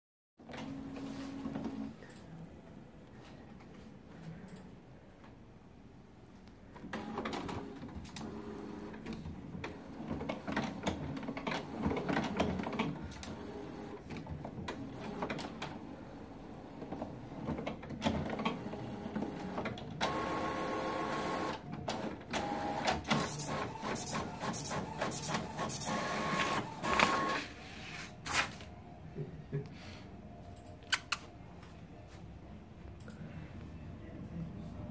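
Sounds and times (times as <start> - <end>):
printer whirring and clicking: 0.4 - 1.9, 6.8 - 27.6.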